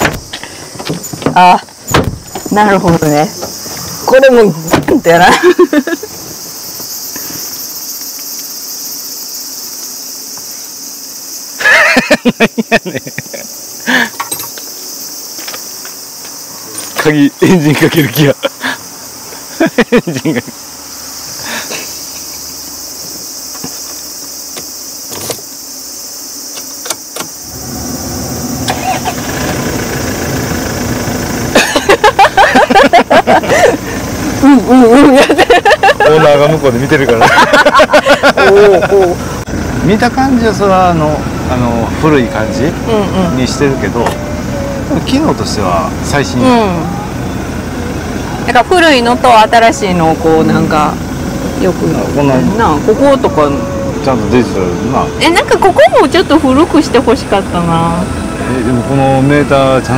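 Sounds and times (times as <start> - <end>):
voices: 0.0 - 8.1, 15.4 - 23.8, 26.6 - 59.9
insects buzzing: 0.0 - 59.9
diesel engine idling: 27.4 - 59.9.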